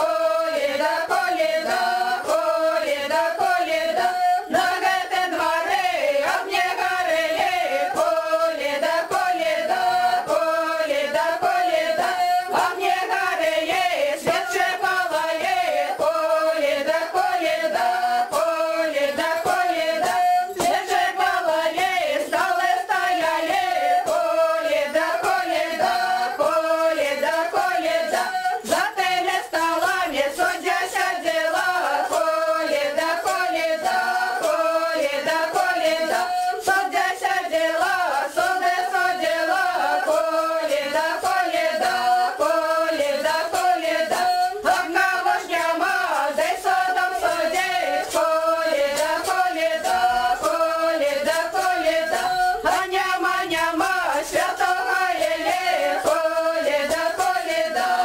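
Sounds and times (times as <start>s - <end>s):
group singing folk carol: 0.0s - 58.0s.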